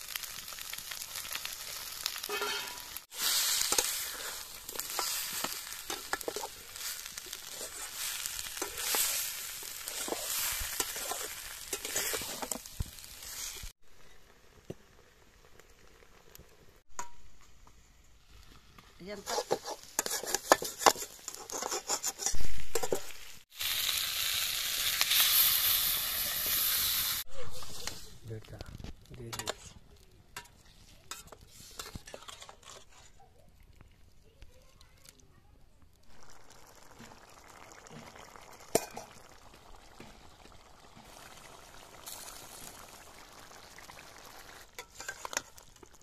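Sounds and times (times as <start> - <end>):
loud sizzling hiss: 0.0 - 13.8, 22.3 - 29.6
curry bubbling at a boil: 0.0 - 35.2, 35.8 - 46.0
spatula scraping steel pan: 2.2 - 2.9, 3.5 - 6.6, 7.2 - 12.6, 19.1 - 23.1, 30.4 - 33.2.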